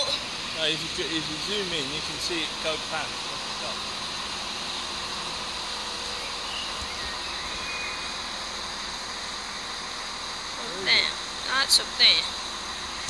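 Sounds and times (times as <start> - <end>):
hum of distant trains: 0.0 - 13.0.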